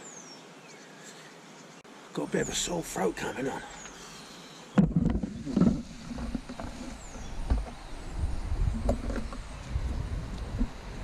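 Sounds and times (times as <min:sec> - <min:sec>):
wind buffeting microphone: 0:04.8 - 0:11.0.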